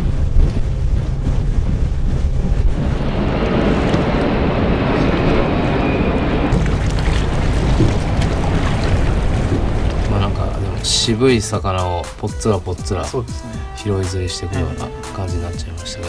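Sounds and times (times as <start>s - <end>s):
wind buffeting microphone: 0.0s - 11.8s
outboard motor running: 6.5s - 11.2s
rushing water: 6.5s - 12.1s.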